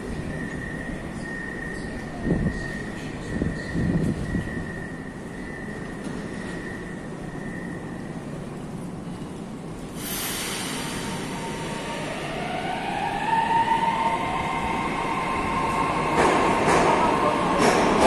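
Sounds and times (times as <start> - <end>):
metro train rumbling: 0.0 - 18.0
train whine rising in pitch: 10.0 - 17.6.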